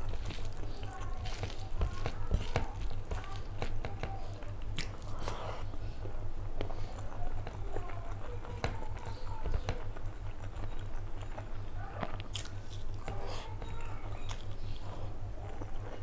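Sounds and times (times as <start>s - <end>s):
steady low hum: 0.0s - 16.0s
wet chewing: 0.0s - 16.0s
lip smacks and clicks: 3.9s - 5.4s.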